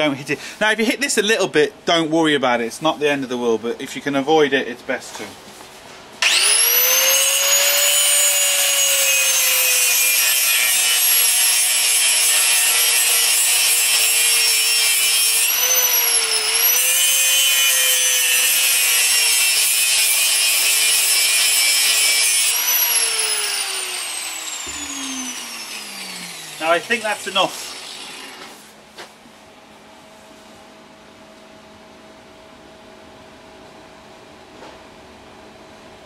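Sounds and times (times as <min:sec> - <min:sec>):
angle grinder cutting steel: 0:06.2 - 0:28.5.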